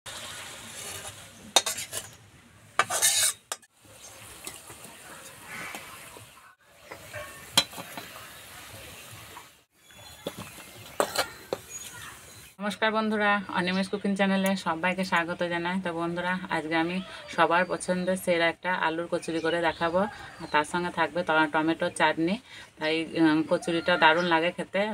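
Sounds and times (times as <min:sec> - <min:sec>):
frying in hot oil: 0:00.1 - 0:19.7
spatula scraping and stirring: 0:00.6 - 0:02.2, 0:02.8 - 0:03.7, 0:10.0 - 0:11.9.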